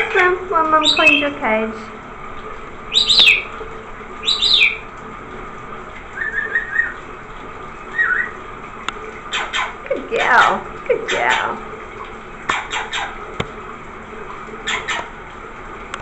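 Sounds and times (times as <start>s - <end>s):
soft bird chirps: 2.9s - 3.5s, 4.2s - 4.8s
parrot screeching: 3.0s - 3.5s, 4.2s - 4.8s, 9.3s - 9.8s, 14.7s - 15.1s.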